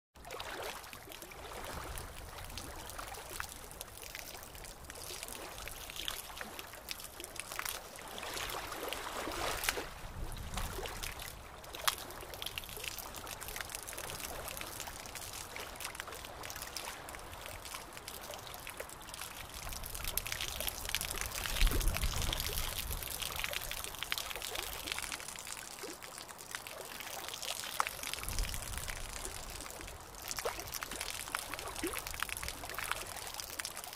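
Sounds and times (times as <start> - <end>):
aquarium water trickling and bubbling: 0.2 - 33.9.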